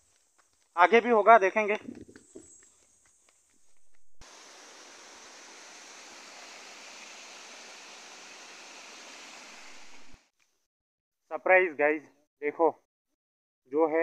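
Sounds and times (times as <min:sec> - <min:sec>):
stream water rushing over rocks: 0:04.2 - 0:10.2.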